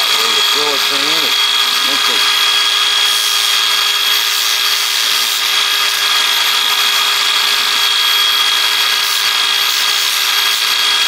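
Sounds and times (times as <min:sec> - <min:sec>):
grinder sanding chainsaw chain: 0:00.0 - 0:11.0.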